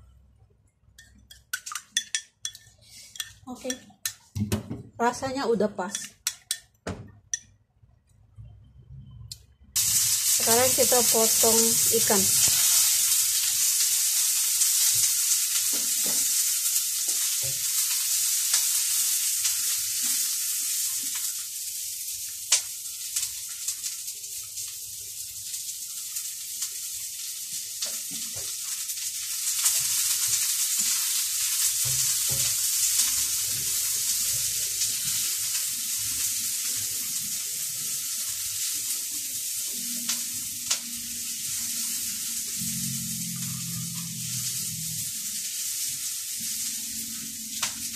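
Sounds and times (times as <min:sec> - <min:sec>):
steady high hiss: 0:09.8 - 0:28.0.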